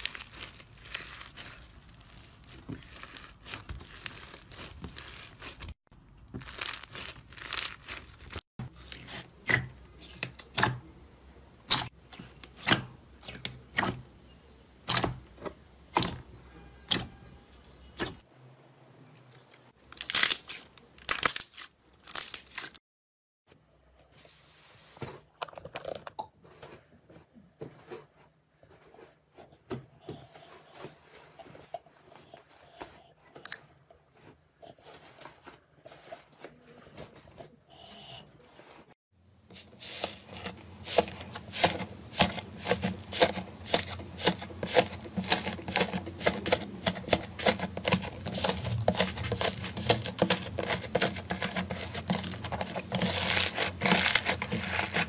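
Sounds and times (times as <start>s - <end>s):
slime crackling under hands: 0.0s - 5.7s, 6.4s - 8.4s
crusted slime crunching: 0.0s - 9.2s, 19.9s - 22.8s, 39.6s - 55.0s.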